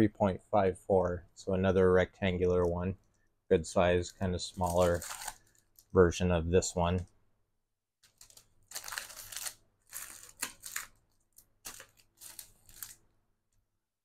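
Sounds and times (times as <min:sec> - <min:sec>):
plastic packaging crinkling: 0:04.5 - 0:05.9, 0:08.0 - 0:13.0.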